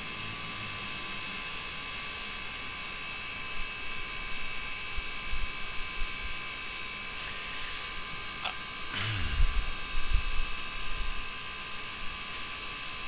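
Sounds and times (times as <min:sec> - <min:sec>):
electrical hum and whine: 0:00.0 - 0:13.0.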